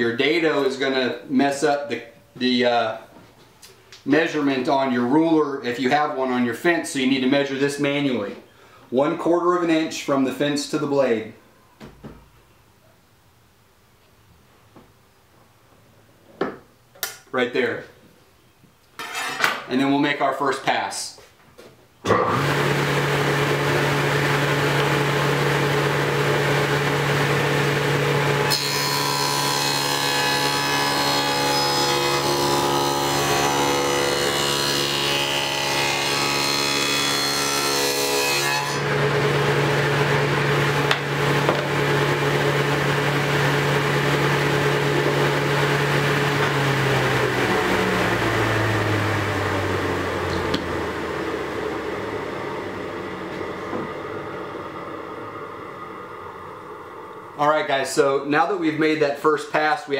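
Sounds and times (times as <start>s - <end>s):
saw cutting wooden board: 22.1s - 25.8s, 28.4s - 48.6s
table saw running: 22.1s - 55.6s.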